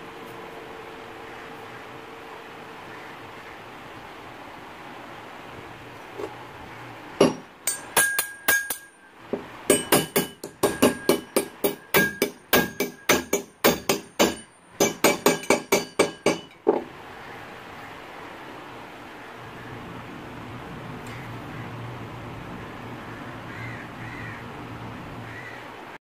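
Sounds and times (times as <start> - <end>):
hammer tapping metal trowel: 9.7 - 16.8.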